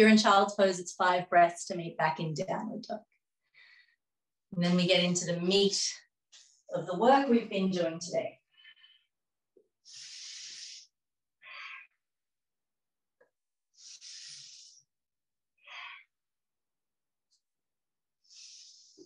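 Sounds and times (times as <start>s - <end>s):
woman breathing slowly: 3.4s - 4.1s, 8.4s - 12.1s, 13.7s - 15.0s, 15.6s - 16.2s, 18.2s - 19.0s.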